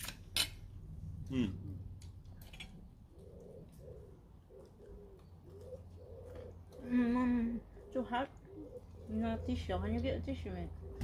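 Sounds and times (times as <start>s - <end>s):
pigeon cooing: 2.7s - 11.0s
person humming: 6.8s - 7.6s.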